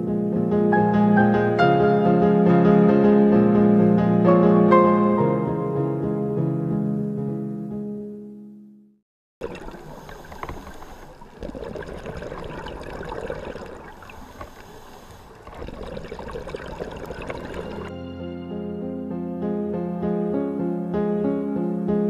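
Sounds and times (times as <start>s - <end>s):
background music: 0.0s - 8.9s, 17.3s - 22.0s
scuba exhale bubbles underwater: 9.4s - 17.9s.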